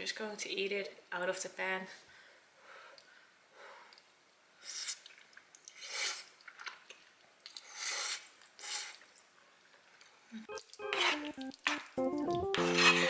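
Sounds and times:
person slurping noodles: 4.6 - 6.3, 7.5 - 9.1, 12.5 - 13.0
chewing: 10.0 - 13.0.

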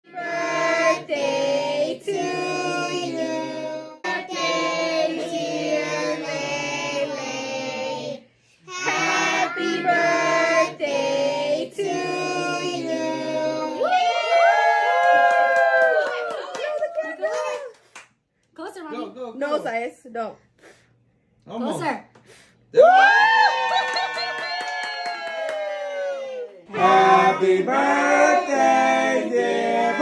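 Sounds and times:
child-like voice singing: 1.9 - 10.9.

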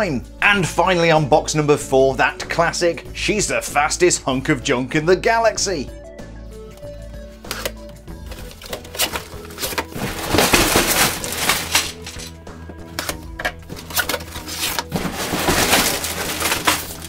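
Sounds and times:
background music: 0.0 - 17.0
blade slitting cardboard: 8.4 - 12.3, 13.8 - 17.0
cardboard flap scraping and tearing: 8.4 - 12.3, 13.8 - 17.0.

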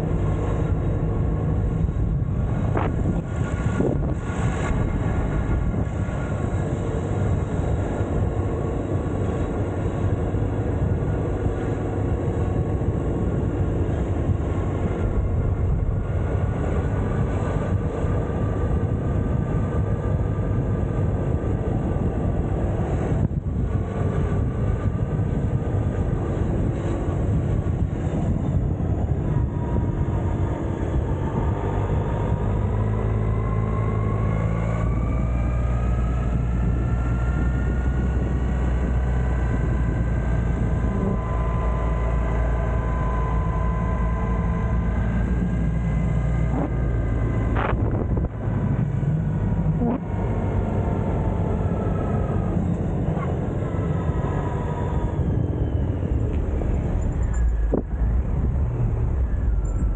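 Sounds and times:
scooter engine whine: 0.0 - 59.9
wind and road noise: 0.0 - 59.9.

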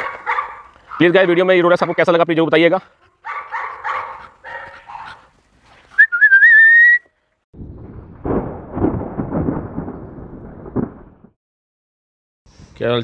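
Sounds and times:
loud rising whistle: 6.0 - 7.1
rumbling noise: 7.6 - 11.4.

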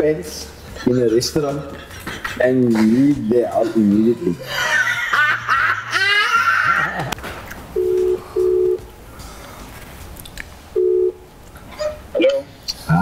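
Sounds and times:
telephone ringback tone: 7.8 - 8.8, 10.8 - 11.2.

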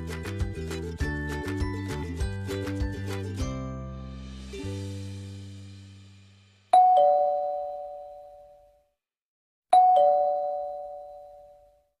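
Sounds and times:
two-tone doorbell chime: 6.8 - 8.8, 9.7 - 11.8.

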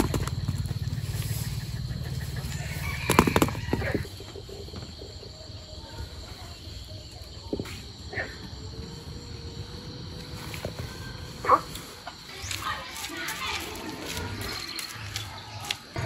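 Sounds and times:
rooster crowing: 2.3 - 4.1.

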